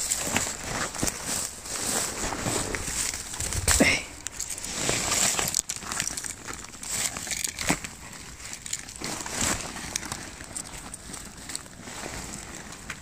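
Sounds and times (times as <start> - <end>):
twigs crackling and rustling underfoot: 0.0 - 13.0
twigs snapping: 2.7 - 11.7.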